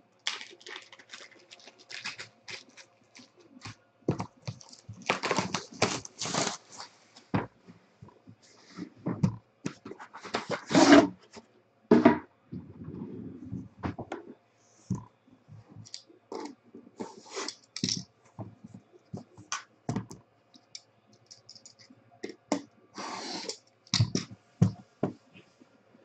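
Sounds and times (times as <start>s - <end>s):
plastic wrap crinkling: 0.2s - 7.0s.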